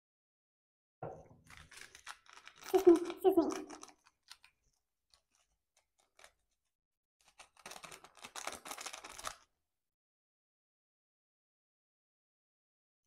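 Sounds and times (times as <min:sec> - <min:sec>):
plastic sachet crinkling: 0:01.4 - 0:09.5.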